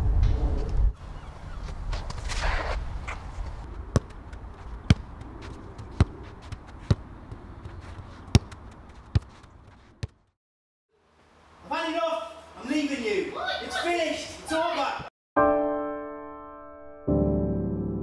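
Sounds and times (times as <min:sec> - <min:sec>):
football kicks on hard court: 0:04.8 - 0:10.2.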